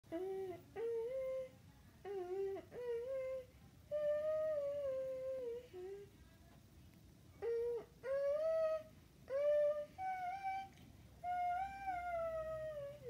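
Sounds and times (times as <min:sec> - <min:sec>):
person humming a tune: 0:00.1 - 0:06.0.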